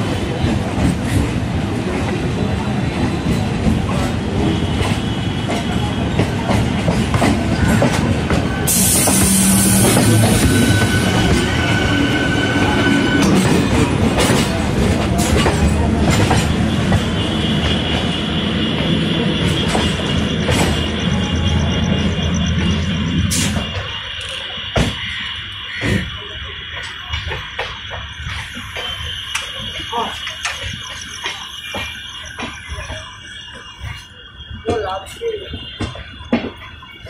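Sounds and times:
train wheel and rail rumble: 0:00.0 - 0:37.0
wheels clacking over rail joints: 0:03.1 - 0:21.2.

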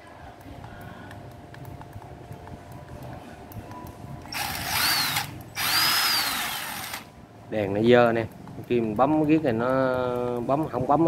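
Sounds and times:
cordless drill motor whine: 0:04.3 - 0:07.1.

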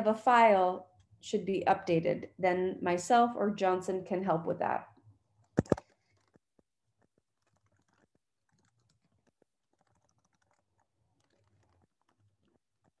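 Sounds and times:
computer keyboard tapping: 0:05.6 - 0:06.4, 0:07.0 - 0:13.0.

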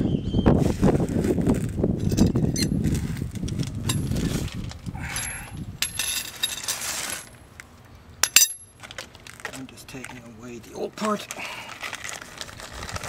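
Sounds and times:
small metal parts clinking: 0:02.0 - 0:07.4, 0:08.2 - 0:10.2
sharp metallic clink: 0:08.2 - 0:08.7.

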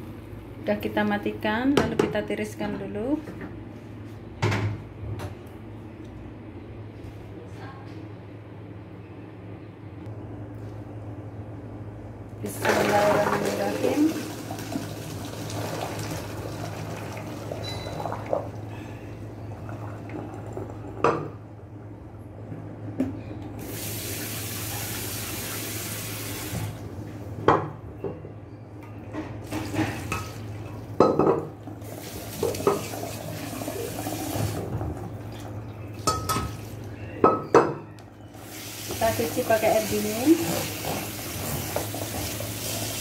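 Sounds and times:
kitchen tap running: 0:12.5 - 0:18.6, 0:23.6 - 0:26.8, 0:31.7 - 0:36.8, 0:38.4 - 0:43.0.

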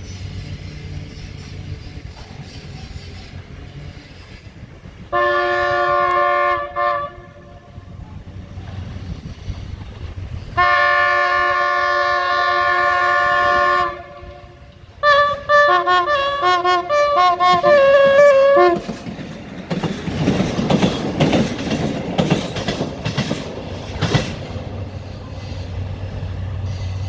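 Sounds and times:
train horn blasts: 0:05.1 - 0:07.9, 0:10.6 - 0:19.0.

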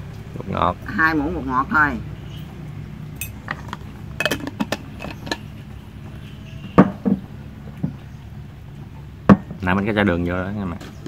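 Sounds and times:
spoon clinking against dishes: 0:03.2 - 0:03.4.

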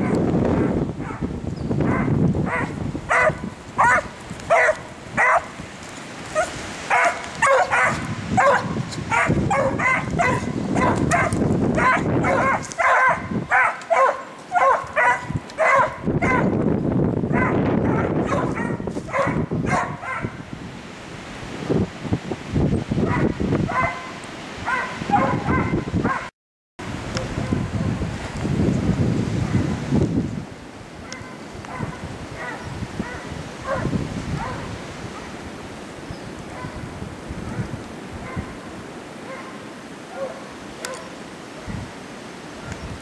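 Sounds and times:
dogs baying: 0:00.0 - 0:05.6, 0:06.3 - 0:16.5, 0:17.3 - 0:20.4, 0:23.1 - 0:24.1, 0:24.7 - 0:26.3, 0:31.0 - 0:35.4, 0:39.2 - 0:41.2.

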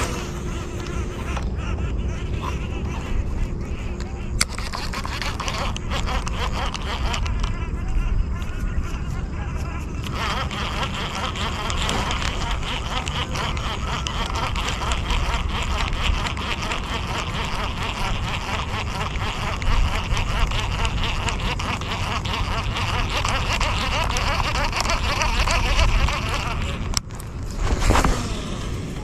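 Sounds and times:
fast crackling chatter: 0:00.0 - 0:28.3
wind buffeting microphone: 0:00.0 - 0:29.0.

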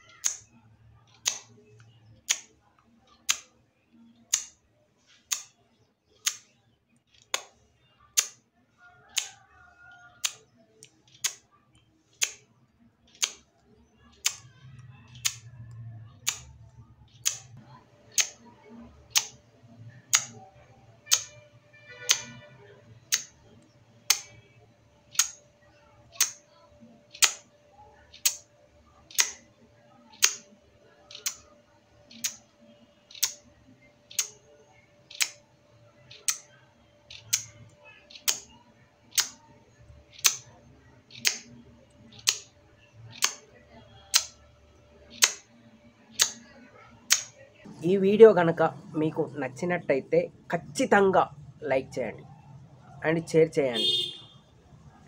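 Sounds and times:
mouth clicks imitating ticking: 0:00.0 - 0:03.5, 0:04.1 - 0:04.6, 0:05.3 - 0:05.6, 0:06.2 - 0:06.5, 0:07.3 - 0:08.4, 0:10.0 - 0:11.5, 0:13.1 - 0:13.5, 0:14.1 - 0:15.5, 0:16.2 - 0:16.5, 0:17.1 - 0:21.4, 0:22.0 - 0:24.5, 0:25.1 - 0:25.5, 0:26.1 - 0:27.5, 0:28.1 - 0:29.5, 0:30.1 - 0:32.5, 0:33.1 - 0:33.5, 0:34.1 - 0:34.5, 0:35.1 - 0:35.4, 0:36.0 - 0:39.5, 0:40.1 - 0:42.5, 0:43.1 - 0:44.5, 0:45.1 - 0:45.5, 0:46.1 - 0:47.4.

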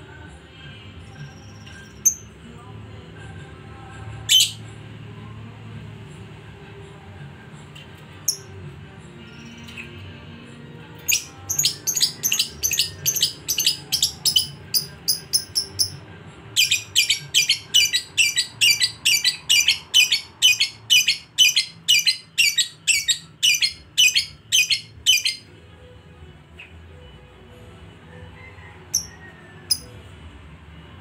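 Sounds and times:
bird chattering high chirps: 0:11.1 - 0:16.0.

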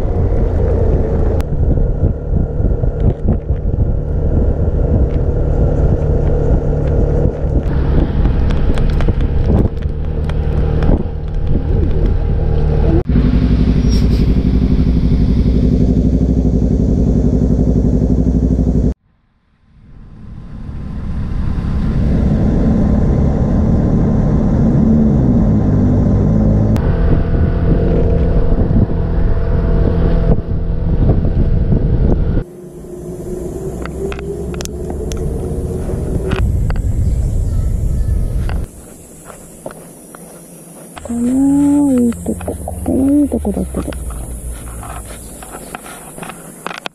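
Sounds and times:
motorbike engine running: 0:00.0 - 0:19.0, 0:34.0 - 0:46.6
wind and road noise: 0:00.0 - 0:46.9.

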